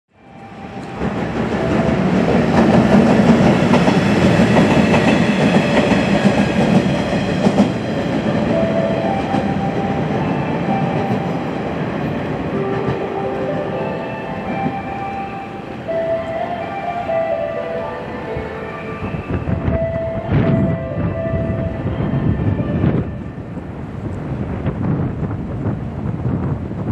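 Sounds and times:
train rolling along track: 0.1 - 26.9
steady high tones: 0.2 - 23.5
wheels clacking over rail joints: 0.7 - 13.8.

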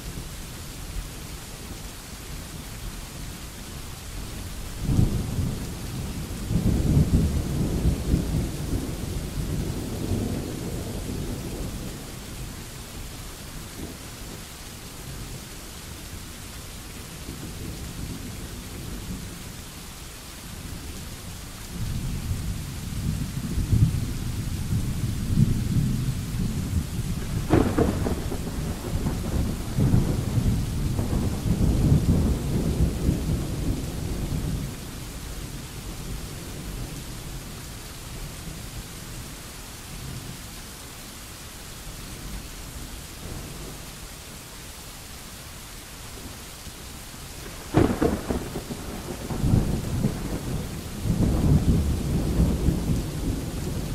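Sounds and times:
steady rain: 0.0 - 53.9
thunder rolling: 25.2 - 34.7, 47.4 - 53.9.

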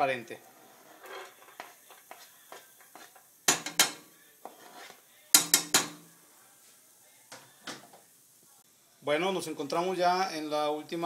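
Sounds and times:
knife scraping cutting board: 0.6 - 3.2, 4.4 - 5.0
knocks against metal pot: 5.4 - 6.0.

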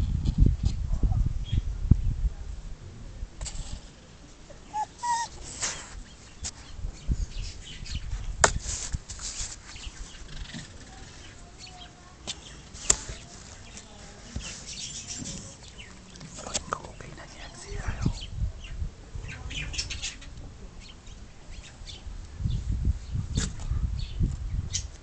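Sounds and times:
kittens rustling and scratching: 5.0 - 6.8, 8.0 - 17.7.

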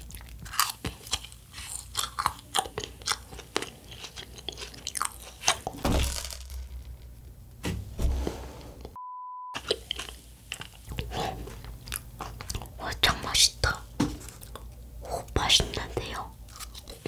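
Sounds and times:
chewing and crunching candy: 0.0 - 5.8, 9.6 - 17.0
test-tone beep: 9.0 - 9.6.

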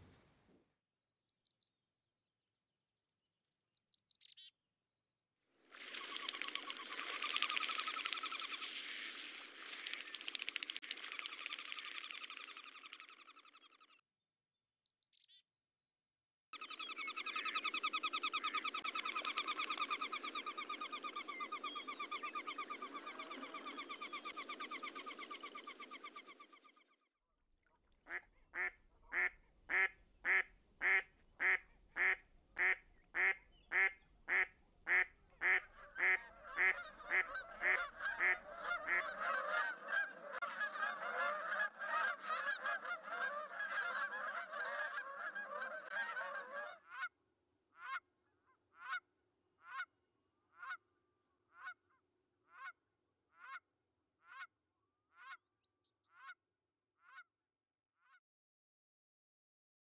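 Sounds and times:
swans honking: 28.6 - 46.8.

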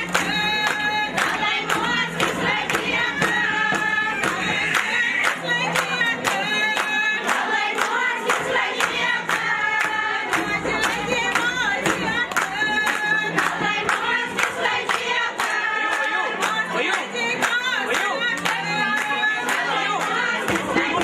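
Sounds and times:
steady handclaps: 0.0 - 21.0
women singing together: 0.0 - 21.0.

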